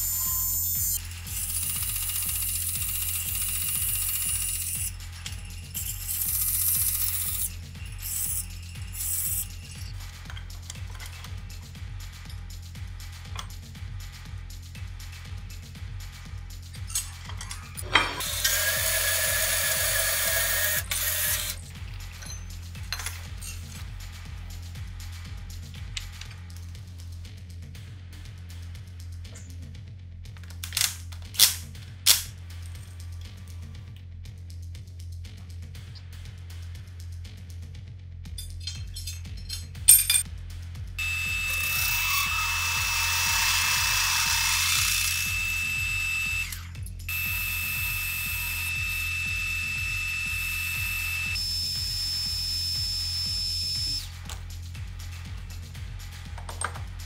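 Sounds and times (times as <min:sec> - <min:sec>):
drill cutting metal whine: 0:00.0 - 0:10.0, 0:17.9 - 0:22.4, 0:41.0 - 0:54.1
background music with beat: 0:00.0 - 0:57.0
chainsaw chain rattling: 0:01.0 - 0:11.4.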